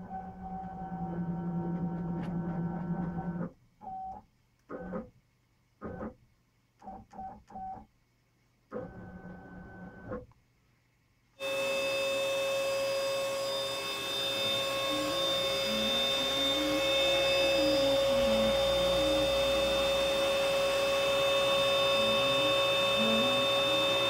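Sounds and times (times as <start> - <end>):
router spindle whine: 11.4 - 24.0
stepper motors tones: 11.4 - 24.0.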